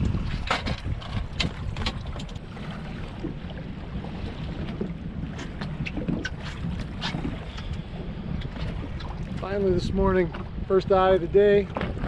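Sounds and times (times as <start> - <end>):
knocks and splashes: 0.0 - 7.8, 11.6 - 12.0
water lapping against boat hull: 0.0 - 12.0
wind buffeting microphone: 0.0 - 12.0.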